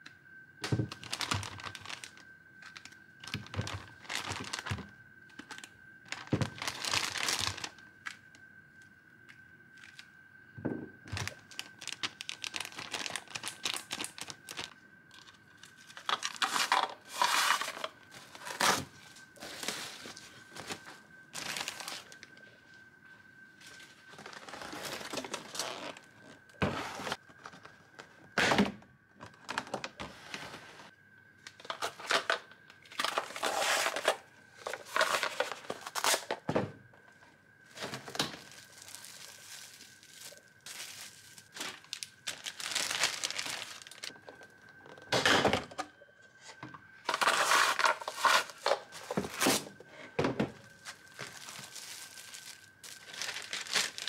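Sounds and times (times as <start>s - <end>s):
packaging crinkling: 0.6s - 8.1s, 11.1s - 22.4s, 31.6s - 36.4s, 37.7s - 45.1s, 47.1s - 49.8s, 50.6s - 54.0s.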